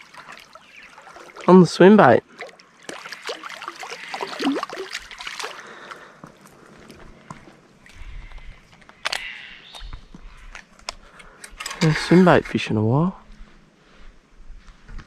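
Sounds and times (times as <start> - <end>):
fish splashing in water: 0.0 - 1.5, 2.2 - 6.1.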